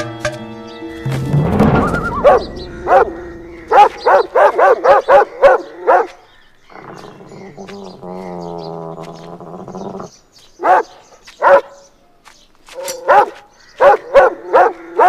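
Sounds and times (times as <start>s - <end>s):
dog barking: 2.1s - 6.2s, 10.6s - 11.9s, 12.8s - 15.0s
dog growling: 6.7s - 10.2s.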